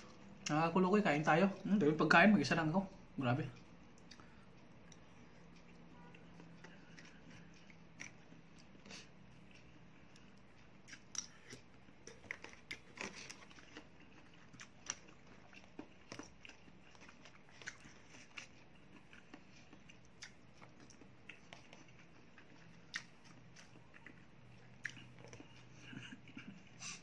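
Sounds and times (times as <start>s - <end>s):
quiet chewing: 3.5s - 27.0s.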